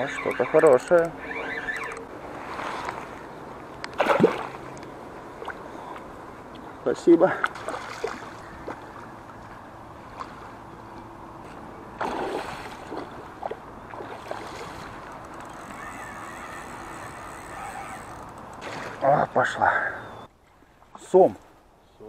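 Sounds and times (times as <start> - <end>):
fish splashing in water: 4.0 - 4.7, 7.4 - 8.9, 12.0 - 16.5, 18.6 - 19.1.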